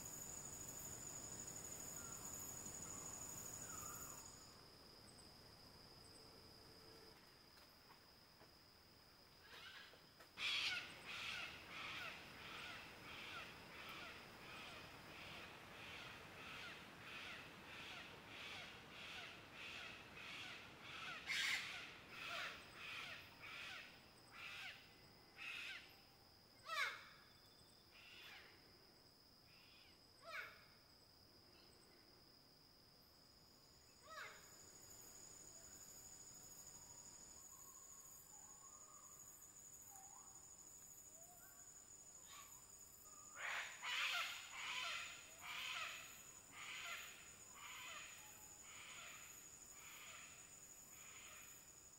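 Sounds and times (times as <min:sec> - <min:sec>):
high insect buzz: 0:00.0 - 0:07.7, 0:39.0 - 0:51.9.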